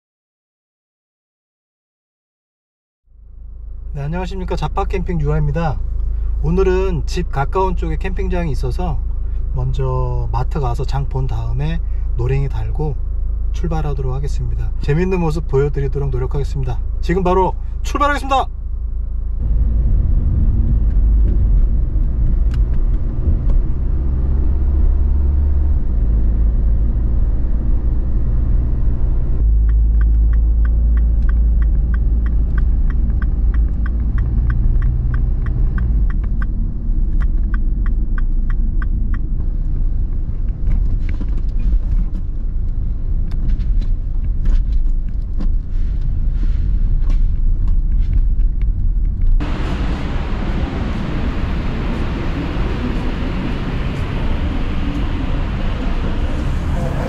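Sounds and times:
car engine and road noise: 0:03.1 - 0:57.0
regular ticking: 0:29.4 - 0:40.3.

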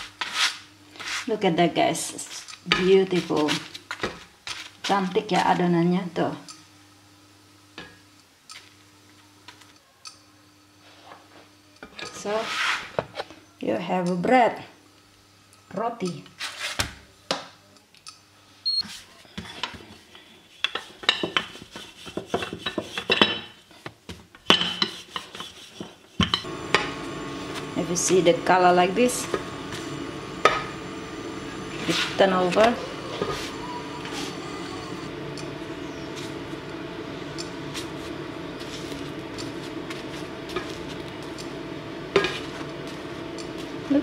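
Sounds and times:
rolling pin rubbing dough: 0:20.5 - 0:23.2, 0:24.7 - 0:41.1
spatula scraping frying pan: 0:24.7 - 0:26.2
steady low hum: 0:26.3 - 0:44.0.

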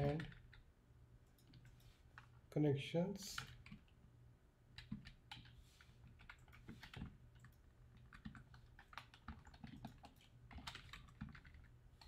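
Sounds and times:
computer keyboard typing: 0:00.0 - 0:00.6, 0:03.3 - 0:03.9, 0:04.8 - 0:12.0.

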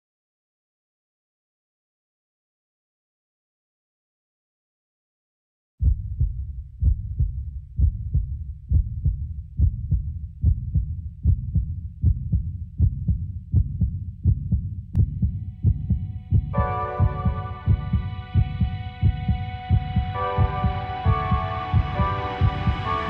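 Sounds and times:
low heartbeat-like double thump: 0:05.8 - 0:23.0
faint synth tones: 0:15.1 - 0:23.0.

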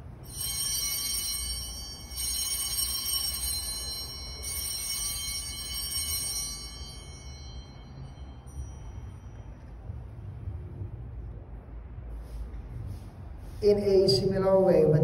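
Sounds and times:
small bells ringing: 0:00.0 - 0:10.2.

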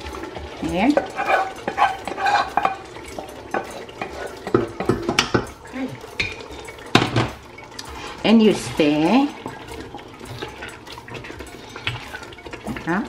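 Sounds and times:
oil sizzling: 0:00.0 - 0:13.0
wooden spoon scraping a pot: 0:00.3 - 0:05.5.

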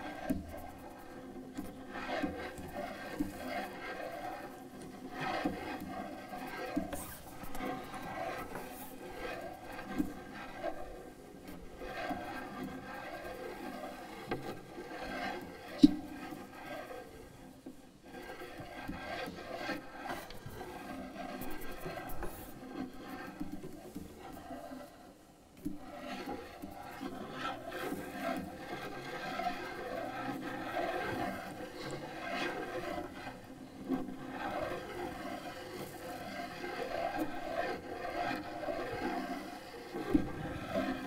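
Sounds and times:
cello bow scraping: 0:00.0 - 0:41.0.

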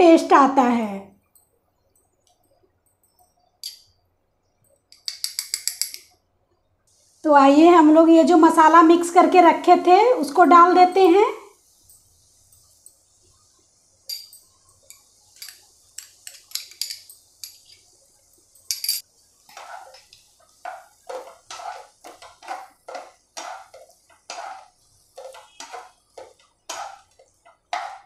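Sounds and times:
light high clinks and taps: 0:14.1 - 0:19.0
spatula scraping frying pan: 0:19.4 - 0:28.0.

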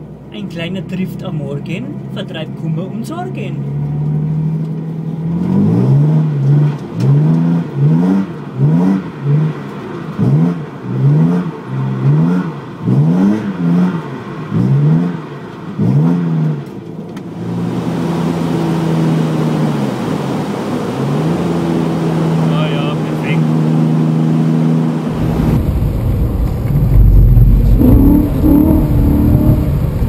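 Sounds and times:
car engine revving: 0:00.0 - 0:30.0
steady engine drone: 0:15.8 - 0:30.0.

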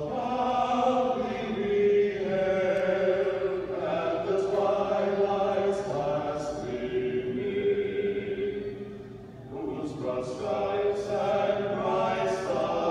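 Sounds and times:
vocal quartet singing a cappella: 0:00.0 - 0:12.9.

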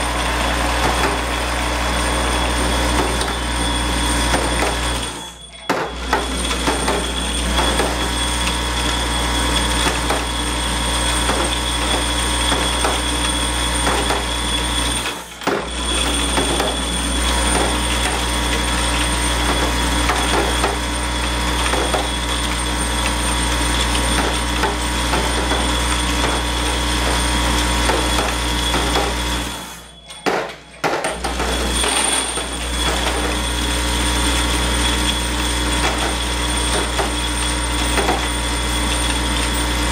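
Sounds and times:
steady electric hum: 0:00.0 - 0:05.5.

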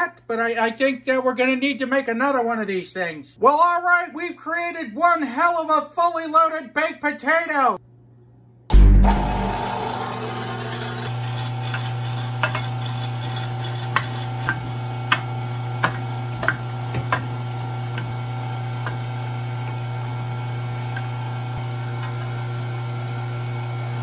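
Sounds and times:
electric meat grinder humming: 0:09.1 - 0:24.0.

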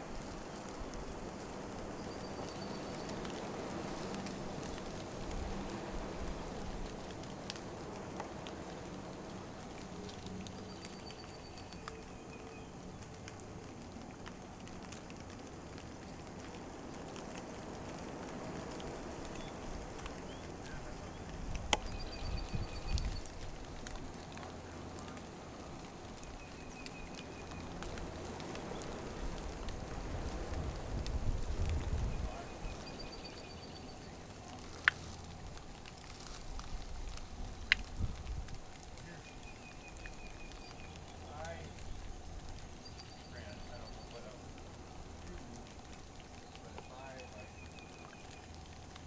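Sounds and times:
soft outdoor hiss: 0:00.0 - 0:49.0
faint clicks: 0:06.5 - 0:49.0
low rumble on microphone: 0:27.5 - 0:32.8.

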